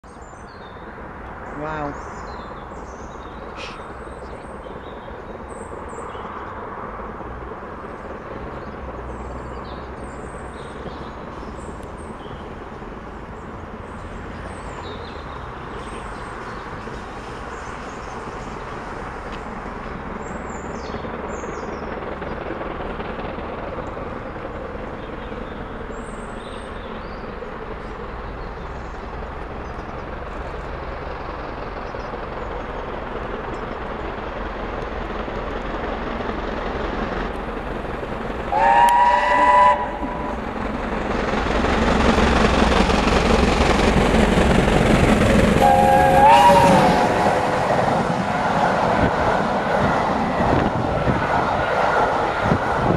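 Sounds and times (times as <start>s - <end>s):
steam locomotive rushing past: 0.3s - 52.9s
steam whistle blasts: 38.5s - 40.3s, 45.6s - 47.2s.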